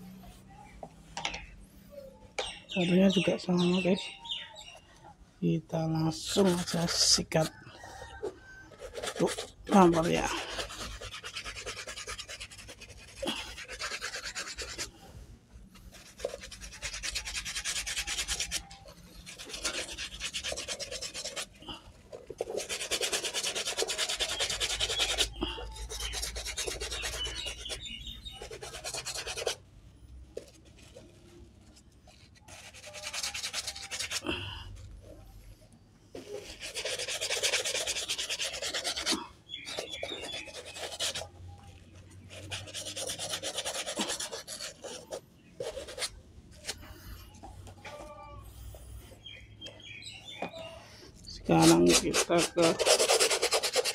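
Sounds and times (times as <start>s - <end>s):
brush scrubbing a shoe: 6.1s - 7.6s, 8.2s - 15.0s, 15.8s - 29.6s, 30.4s - 34.8s, 36.2s - 41.4s, 42.0s - 47.6s, 51.2s - 53.9s.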